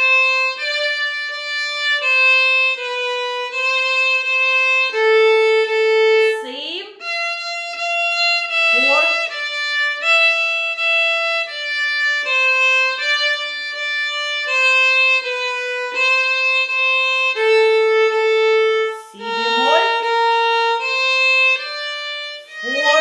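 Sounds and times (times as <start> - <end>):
solo violin melody: 0.0 - 23.0.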